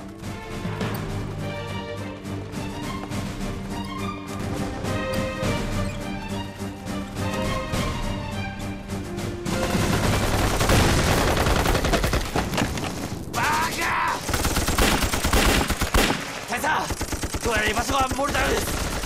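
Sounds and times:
orchestral film music: 0.0s - 14.3s
rifle and machine-gun fire: 9.6s - 13.2s, 14.1s - 19.0s.

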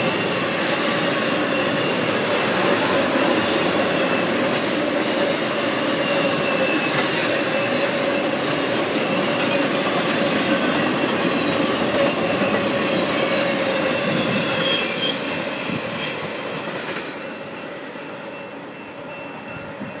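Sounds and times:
wheel squeal: 0.0s - 4.5s, 5.8s - 16.2s
steel wheels rumbling on rail: 0.0s - 20.0s.

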